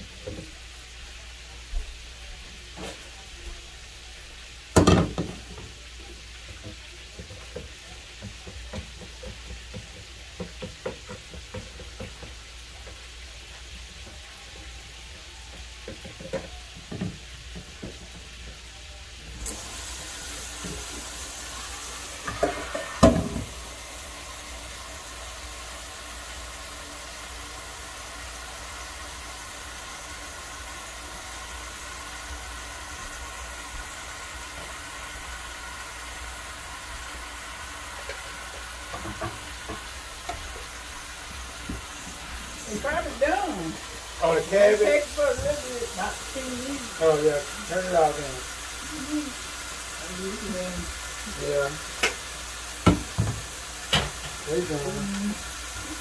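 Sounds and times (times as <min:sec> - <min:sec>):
chicken frying sizzle: 0:00.0 - 0:56.0
pan knocking in sink: 0:04.7 - 0:05.7, 0:06.4 - 0:13.0, 0:22.2 - 0:23.6, 0:38.9 - 0:40.7, 0:52.8 - 0:54.4
tap running into metal pan: 0:04.7 - 0:05.7, 0:06.4 - 0:13.0, 0:22.2 - 0:23.6, 0:38.0 - 0:40.7, 0:52.0 - 0:52.2, 0:52.8 - 0:54.4.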